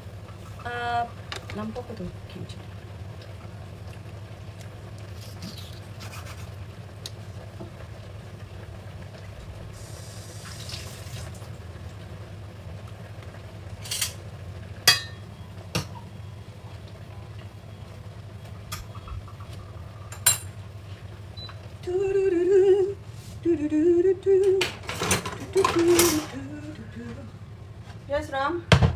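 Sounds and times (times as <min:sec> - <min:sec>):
steady low hum: 0:11.3 - 0:28.9
kitchen things clinking and knocking: 0:24.6 - 0:26.3.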